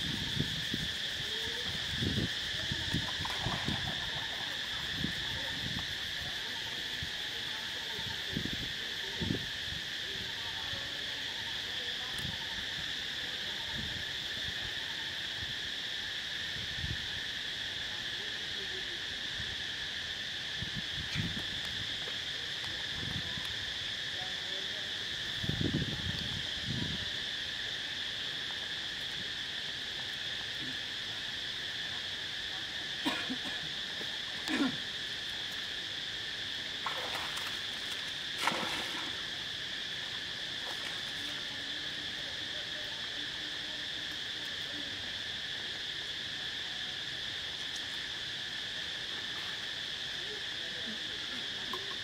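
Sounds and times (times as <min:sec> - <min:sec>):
high insect drone: 0:00.0 - 0:52.0
monkeys splashing into water: 0:02.8 - 0:04.8, 0:36.8 - 0:39.4.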